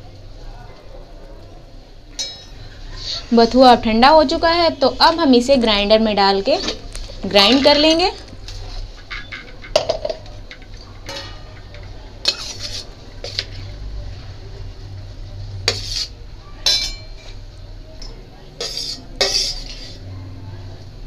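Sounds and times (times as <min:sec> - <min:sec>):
steel plate clanking on metal jar: 0:09.0 - 0:13.5, 0:18.6 - 0:20.0.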